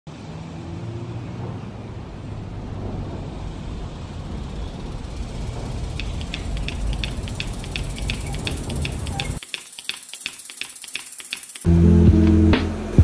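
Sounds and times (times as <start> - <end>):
low outdoor rumble: 1.0 - 9.4
sharp high ticks: 5.1 - 11.7.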